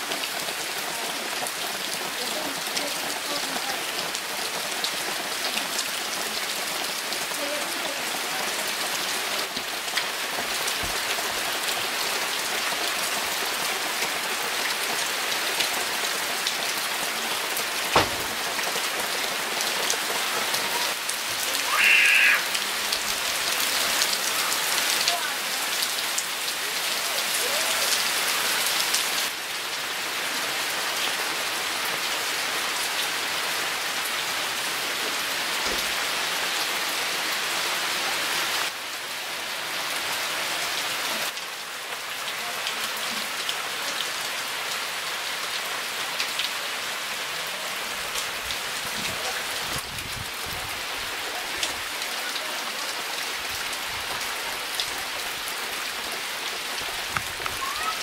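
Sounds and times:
rain on leaves and roof tiles: 0.0s - 58.0s
sharp knock: 18.0s - 18.4s.

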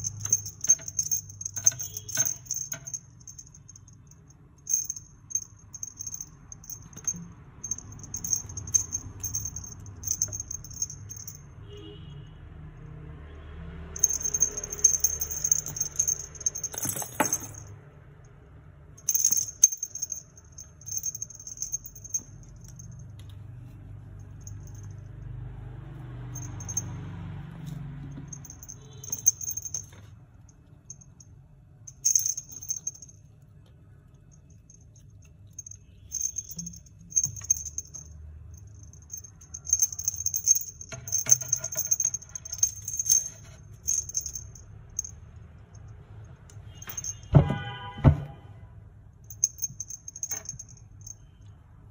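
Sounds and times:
jingle bell jingling: 0.0s - 11.5s, 13.9s - 17.8s, 19.0s - 23.2s, 24.2s - 25.2s, 26.0s - 30.0s, 31.9s - 33.2s, 34.3s - 45.9s, 46.7s - 47.3s, 49.3s - 51.4s.

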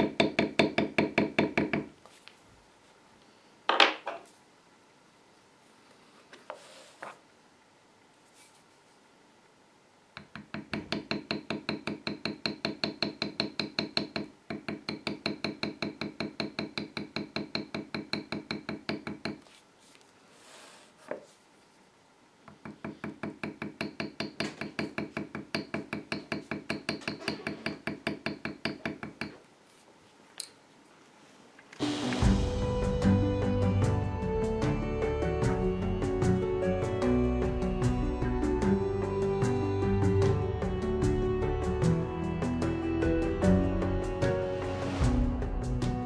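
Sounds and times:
mallet tapping metal tool on leather: 10.2s - 19.4s.

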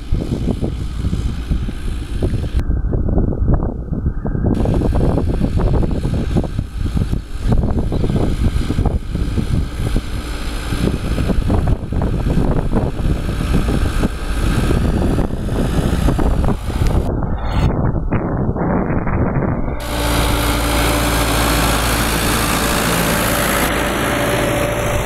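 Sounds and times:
tractor diesel engine under load: 0.0s - 2.6s, 4.6s - 17.4s, 18.6s - 25.0s.

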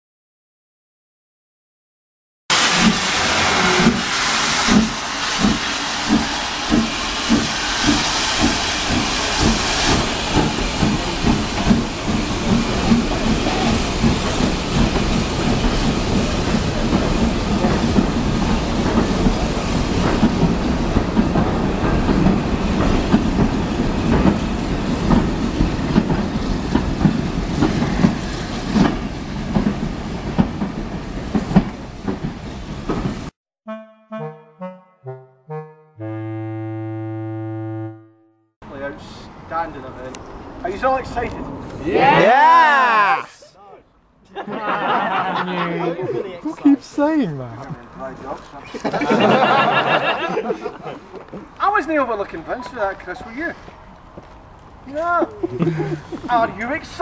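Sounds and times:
locomotive exhaust chuffs: 2.5s - 32.3s
steam hissing: 2.5s - 33.2s
train wheels clicking on rail joints: 2.7s - 33.3s.

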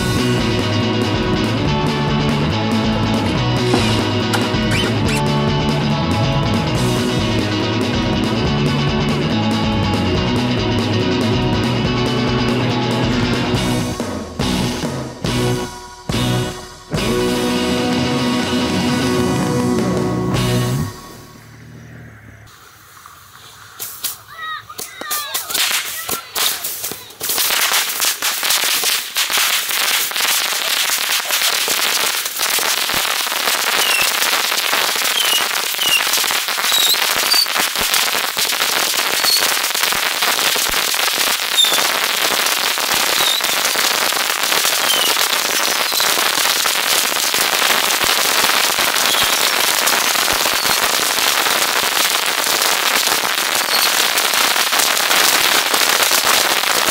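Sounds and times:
bottle rockets crackling bangs: 3.5s - 5.3s, 23.8s - 56.9s
rocket whistles: 3.9s - 5.3s, 33.6s - 34.3s, 35.0s - 37.8s, 38.9s - 39.7s, 41.4s - 42.0s, 43.0s - 43.8s, 44.6s - 46.4s, 48.8s - 51.0s, 53.5s - 54.3s.

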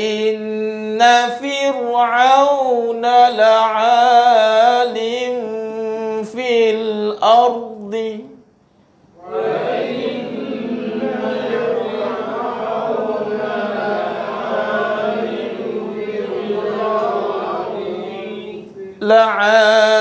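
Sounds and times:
man reciting: 0.0s - 8.5s, 9.2s - 20.0s
group of voices chanting: 9.2s - 19.0s.

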